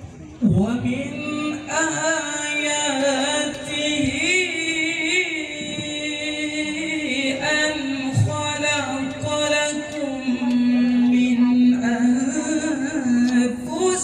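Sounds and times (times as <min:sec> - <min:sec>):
man reciting melodically: 0:00.4 - 0:14.0.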